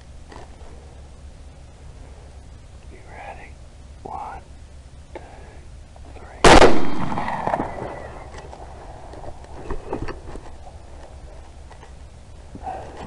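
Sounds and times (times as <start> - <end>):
rifle shot echoing: 6.4 - 9.0.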